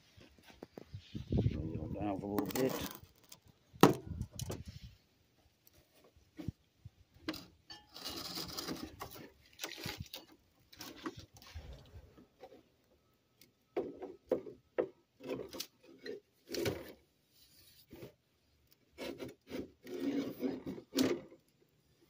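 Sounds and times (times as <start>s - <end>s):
plastic scraping and rubbing: 0.2s - 4.9s, 7.3s - 12.7s, 15.2s - 21.4s
plastic knocks and clunks: 3.8s - 4.6s.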